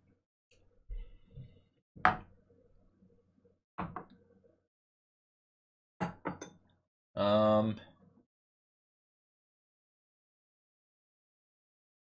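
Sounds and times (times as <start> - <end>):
glasses knocking on wooden table: 6.0 - 6.6.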